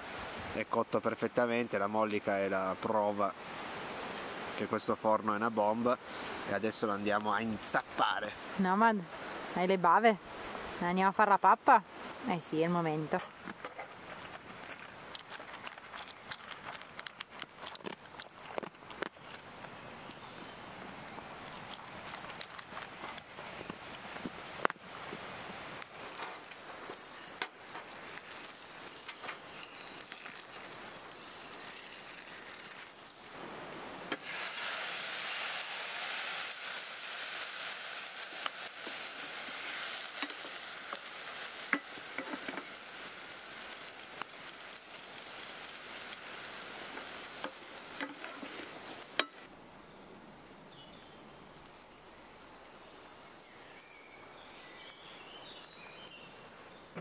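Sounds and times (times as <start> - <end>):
food sizzling in a frying pan: 28.1 - 33.4, 34.1 - 49.5.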